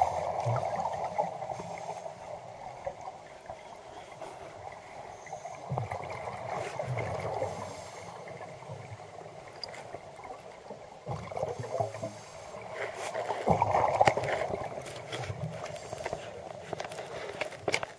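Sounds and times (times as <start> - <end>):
underwater rushing water: 0.0 - 17.9.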